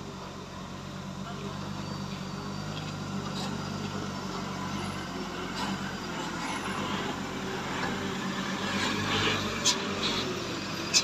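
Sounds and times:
diesel truck driving past: 0:00.0 - 0:11.0
distant truck engine: 0:00.0 - 0:11.0.

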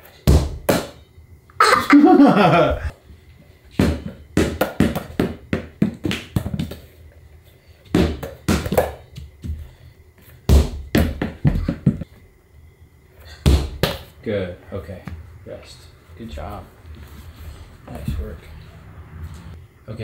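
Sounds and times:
basketball bouncing on rubber floor: 0:03.8 - 0:06.8, 0:07.9 - 0:09.6, 0:10.5 - 0:12.0.

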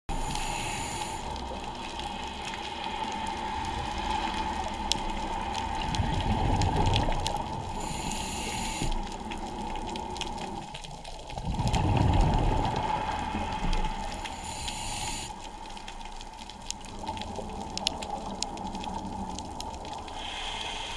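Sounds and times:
regulator inhale hissing: 0:00.1 - 0:01.4, 0:07.7 - 0:09.2, 0:14.1 - 0:15.4, 0:20.1 - 0:20.9
exhaled bubbles gurgling: 0:00.1 - 0:20.9.

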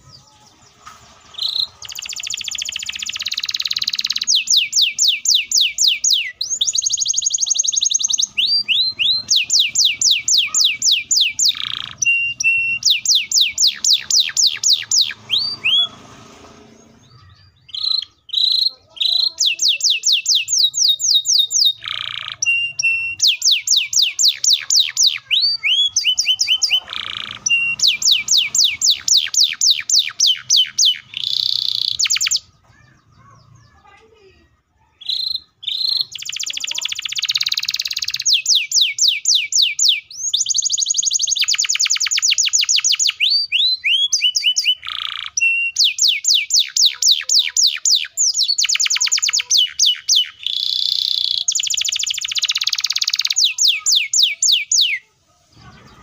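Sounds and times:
canary singing: 0:00.0 - 0:56.0.

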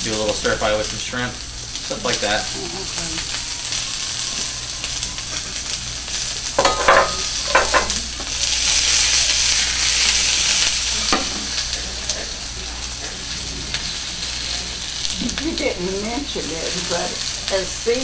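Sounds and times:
chicken sizzling in oil: 0:00.0 - 0:18.0
utensil knocking in pan: 0:06.6 - 0:08.0.

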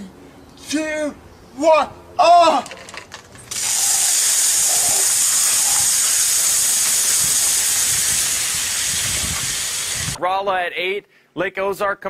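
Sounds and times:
hiss of spraying fizz: 0:03.5 - 0:10.2.

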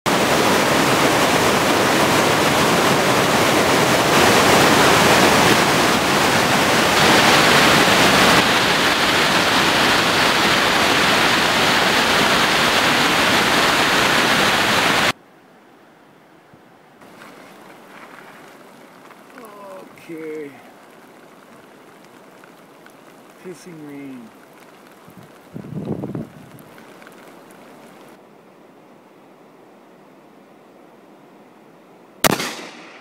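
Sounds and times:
whitewater rushing over rocks: 0:00.1 - 0:15.2, 0:17.0 - 0:28.2.

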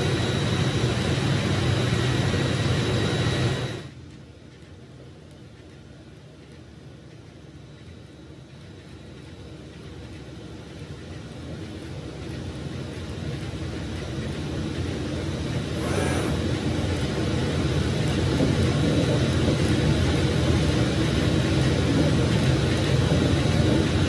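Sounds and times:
cutting machine rumble and hiss: 0:12.9 - 0:24.0.

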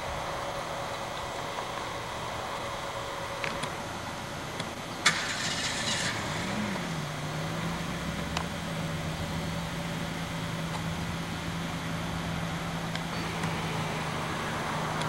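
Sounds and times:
hiss of noise: 0:00.0 - 0:15.0
car engine starting and idling: 0:00.5 - 0:15.0.

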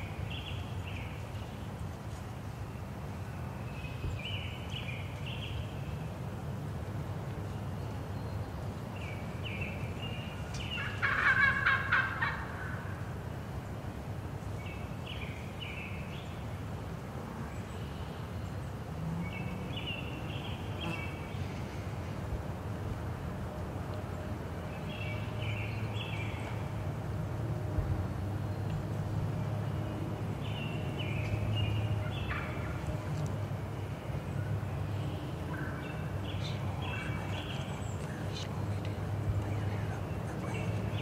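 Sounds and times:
wild turkey gobbling: 0:10.8 - 0:12.9, 0:32.2 - 0:32.7.

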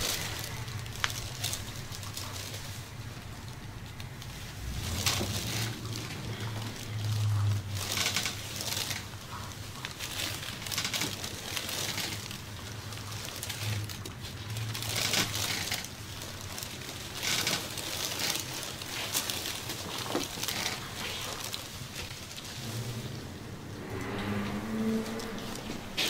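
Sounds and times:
steady low hum: 0:18.5 - 0:26.0.

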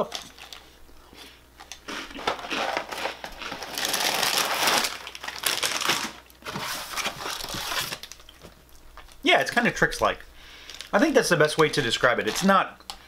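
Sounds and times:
plastic bag crinkling: 0:01.9 - 0:09.2, 0:10.6 - 0:12.6.

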